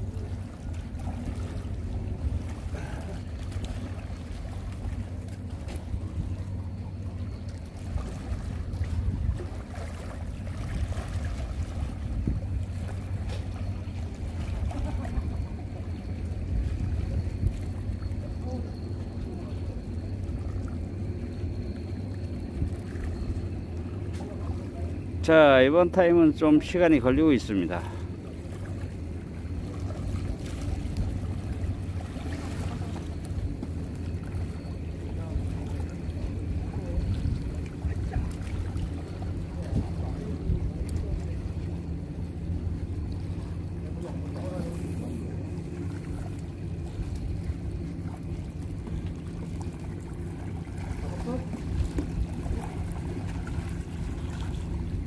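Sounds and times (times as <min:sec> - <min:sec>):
rippling sea water: 0:00.0 - 0:55.0
wind buffeting microphone: 0:08.0 - 0:09.7, 0:10.7 - 0:12.8.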